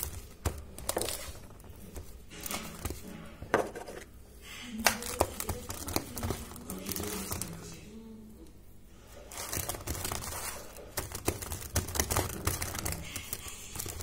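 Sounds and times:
hands squishing mashed potato: 0.0 - 8.0, 9.0 - 14.0.

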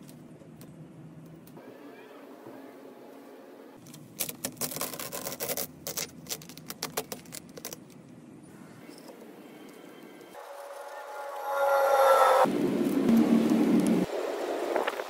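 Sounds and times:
plastic sheet crinkling: 3.8 - 8.0.

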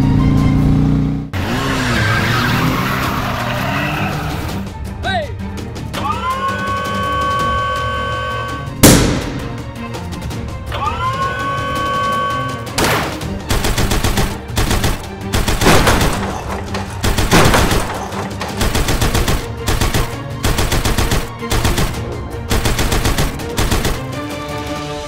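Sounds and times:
background music: 0.0 - 25.0
explosion blasts: 8.8 - 9.8
rapid gunfire sound effects: 12.8 - 24.3.

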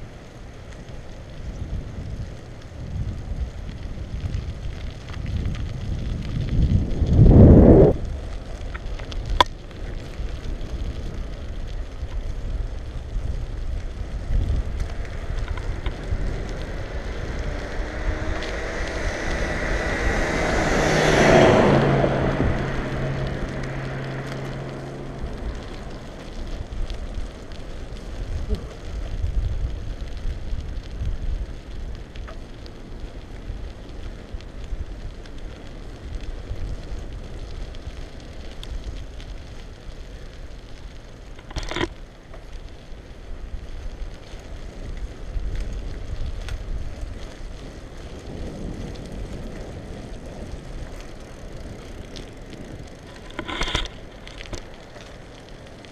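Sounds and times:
passing vehicle hum: 0.0 - 40.8, 43.5 - 55.9
bicycle rolling on pavement: 0.0 - 55.9
wind rumble on microphone: 0.0 - 55.9.

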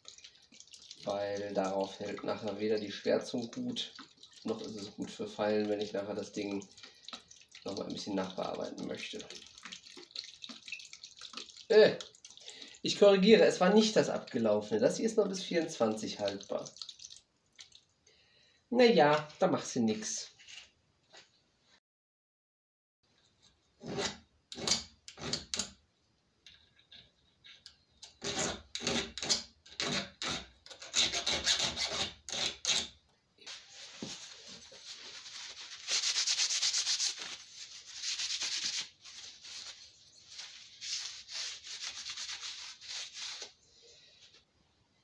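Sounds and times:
paper towel scrubbing metal: 33.5 - 43.6.

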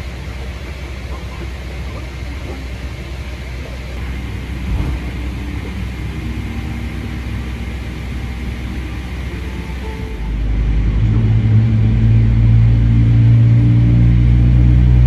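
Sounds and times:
airplane cabin rumble and air hiss: 0.0 - 15.0.

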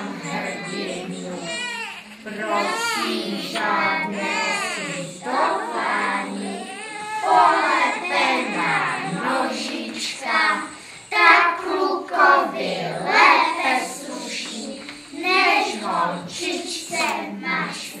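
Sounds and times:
young children singing: 0.0 - 18.0.

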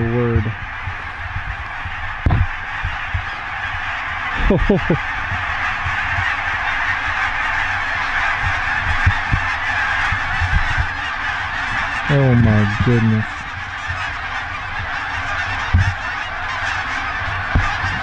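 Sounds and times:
low thumps: 0.0 - 3.3
geese honking overhead: 0.0 - 18.0.

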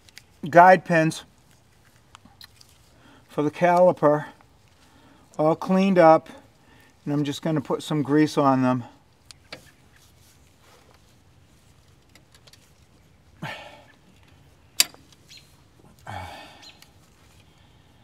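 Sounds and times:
faint handling noises: 9.0 - 16.1, 16.8 - 18.0.

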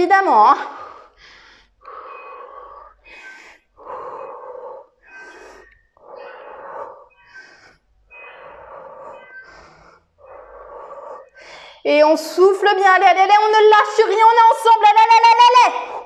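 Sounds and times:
woman breathing hard: 0.5 - 12.0.

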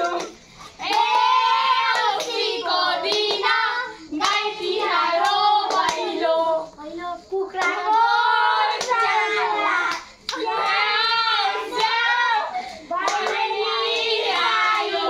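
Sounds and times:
hand claps: 0.0 - 3.6, 4.2 - 4.5, 5.2 - 6.1, 7.6 - 8.0, 8.7 - 9.1, 9.8 - 10.8, 11.7 - 12.0, 13.0 - 15.0
children singing: 0.0 - 6.7, 7.4 - 15.0.

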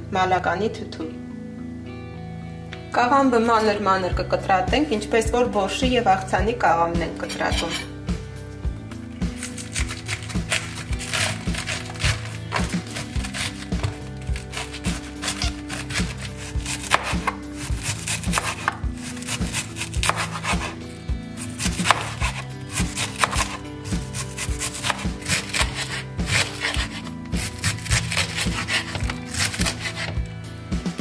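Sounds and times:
background music: 0.0 - 31.0
knife slicing cabbage on board: 9.2 - 20.8, 21.4 - 30.2.

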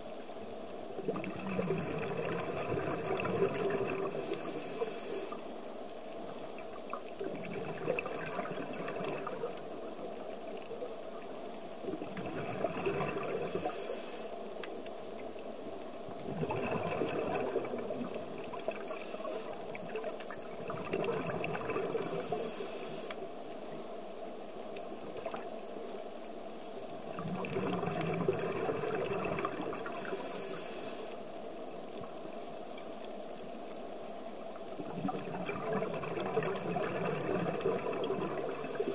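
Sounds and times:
bubbling rush of exhale: 1.1 - 5.4, 16.2 - 19.9
regulator hiss on inhale: 4.0 - 5.6, 13.1 - 14.6, 18.7 - 19.9, 21.8 - 23.4, 29.8 - 31.4, 38.0 - 38.9.

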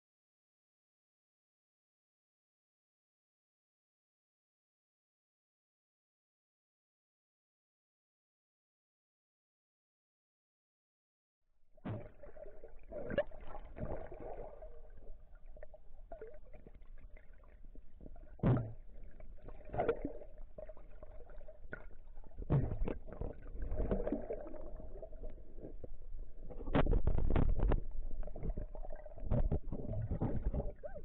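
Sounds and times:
underwater sloshing and gurgling: 11.7 - 31.0
faint steady tone: 11.9 - 22.5.

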